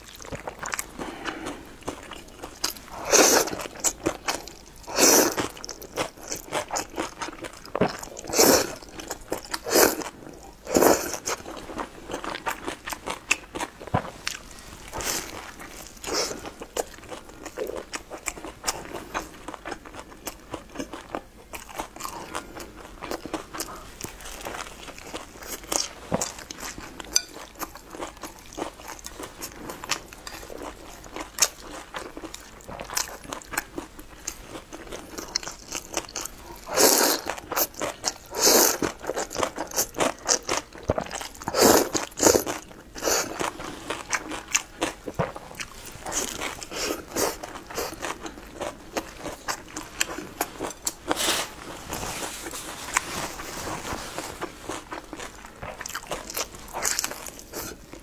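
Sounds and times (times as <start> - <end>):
wet chewing and mouth clicks: 54.4 - 58.0.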